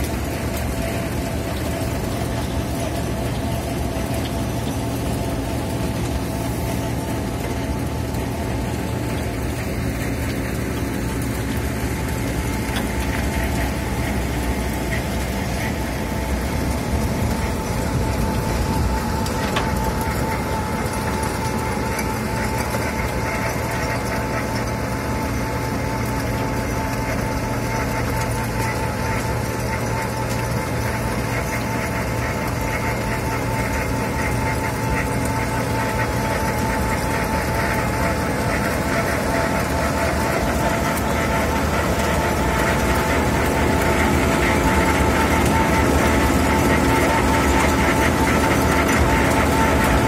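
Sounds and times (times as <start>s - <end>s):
diesel engines running: 0.0s - 50.0s
machine whine: 0.0s - 50.0s.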